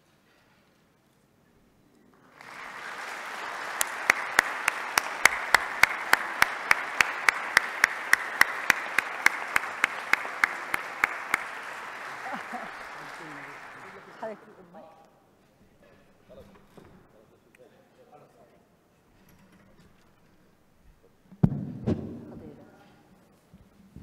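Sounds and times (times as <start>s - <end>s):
audience applauding: 2.2s - 14.8s
sharp even claps: 2.3s - 14.5s.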